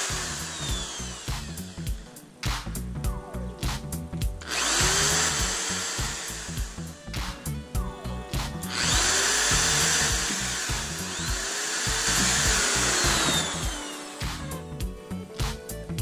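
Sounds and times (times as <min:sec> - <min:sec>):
electric drill boring plastic: 0:00.0 - 0:01.9, 0:04.4 - 0:07.1, 0:08.6 - 0:14.7
background music with beat: 0:00.0 - 0:16.0.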